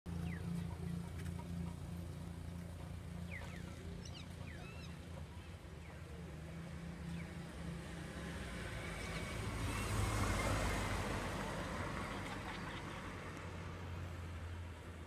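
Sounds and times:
car passing by: 6.1 - 15.0.

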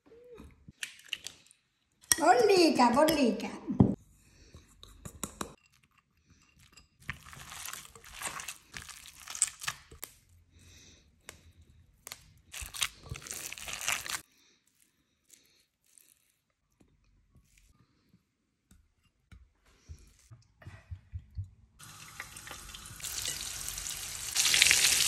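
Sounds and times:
hands mixing crumbly mixture: 7.0 - 10.2, 11.2 - 17.7.

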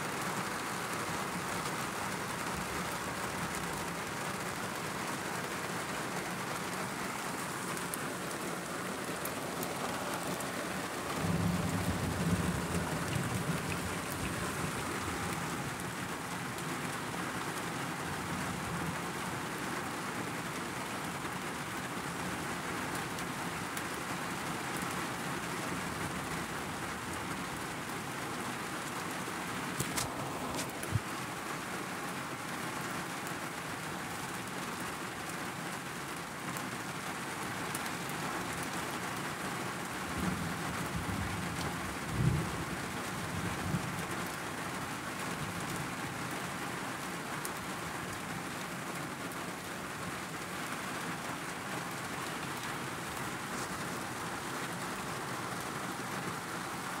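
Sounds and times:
rain on car windshield: 0.0 - 57.0
thunder rumbling: 9.9 - 15.9.

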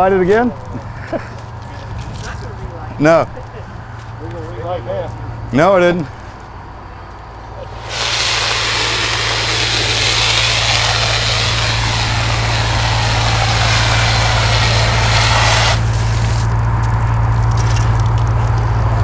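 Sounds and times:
engine droning: 0.0 - 19.0
fire hose spraying foam hiss: 7.6 - 16.6.

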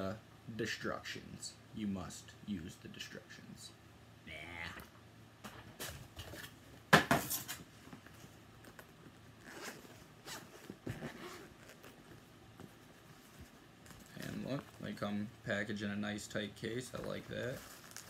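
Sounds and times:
zipper being pulled open: 9.4 - 12.1.

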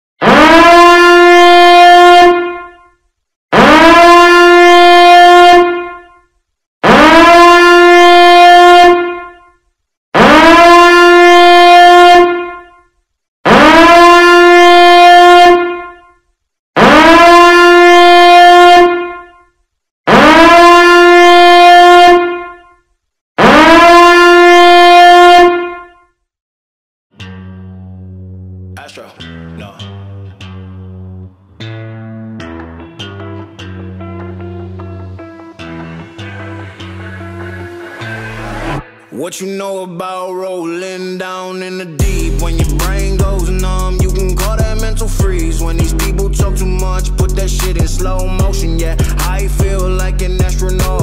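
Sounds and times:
loud horn blasts: 0.2 - 9.6, 10.2 - 12.9, 13.5 - 16.2, 16.8 - 19.5, 20.1 - 22.8, 23.4 - 26.0, 34.1 - 39.2.

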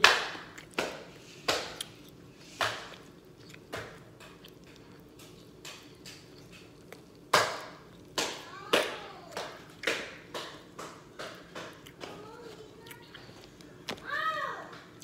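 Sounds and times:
person chewing and biting food: 0.1 - 8.2, 11.4 - 14.0.

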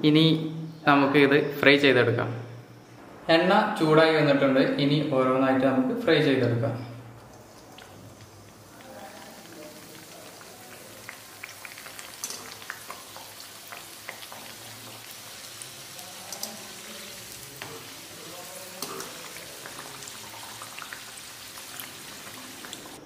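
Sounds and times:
deep-frying sizzle with crackling pops: 7.2 - 23.0.

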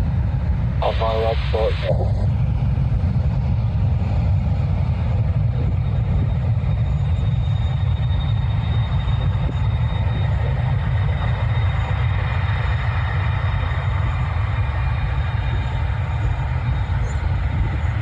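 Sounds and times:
jet engines rumbling: 0.0 - 18.0
faint high whine: 0.8 - 2.4, 5.2 - 18.0.

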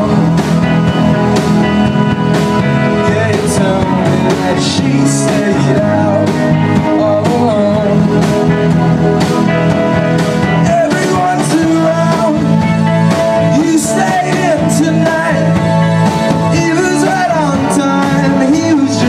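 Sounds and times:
rock band playing live: 0.0 - 19.0
man singing: 2.8 - 8.4, 10.5 - 19.0.

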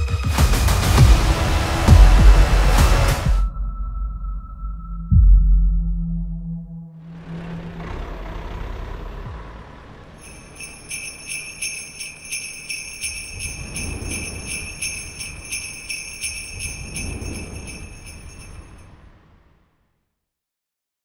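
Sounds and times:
low rumble: 0.9 - 19.3
sleigh bells shaken: 10.2 - 18.9.

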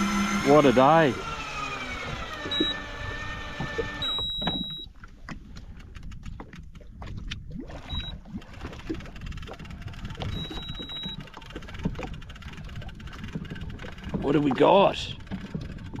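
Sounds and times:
electric fishing reel whining: 0.0 - 4.6, 9.7 - 14.1
water lapping at hull: 0.0 - 16.0.

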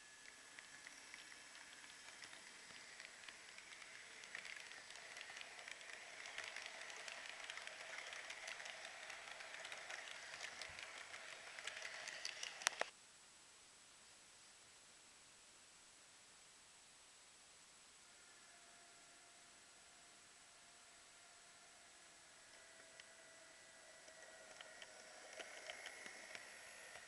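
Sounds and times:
model train wheels clattering: 0.0 - 12.9, 23.8 - 27.0
low hiss: 0.0 - 27.0.

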